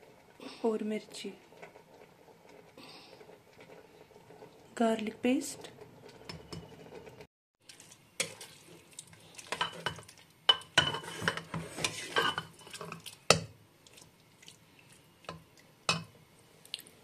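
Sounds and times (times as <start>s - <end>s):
spoon stirring thick sauce: 7.6s - 15.7s.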